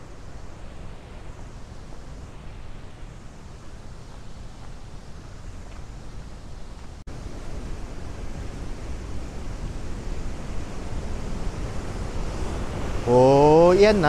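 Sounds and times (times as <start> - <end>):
white water rushing over rapids: 7.1 - 14.0.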